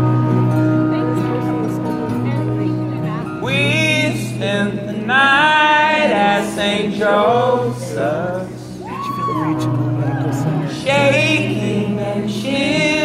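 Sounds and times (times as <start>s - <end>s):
acoustic guitars strumming: 0.0s - 13.0s
man singing: 3.2s - 13.0s.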